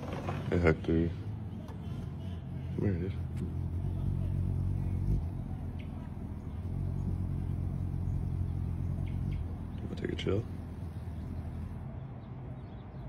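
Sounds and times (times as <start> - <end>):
hummingbird wings humming: 1.8 - 12.0.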